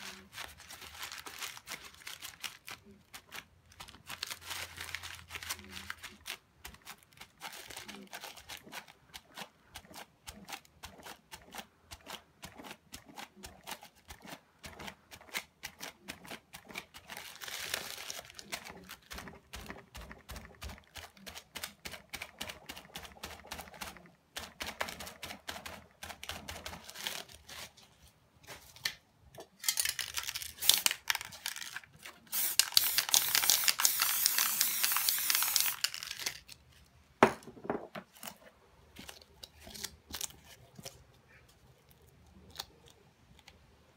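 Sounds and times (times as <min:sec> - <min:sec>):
plastic crinkling patter: 0:00.0 - 0:11.2, 0:13.5 - 0:29.0, 0:29.6 - 0:36.9
aerosol spray can hissing: 0:32.3 - 0:35.8.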